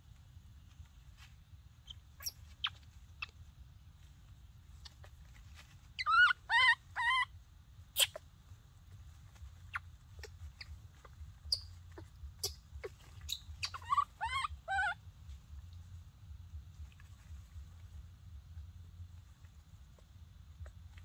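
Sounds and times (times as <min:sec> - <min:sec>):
baby monkey crying: 0:06.0 - 0:07.4, 0:09.7 - 0:15.0.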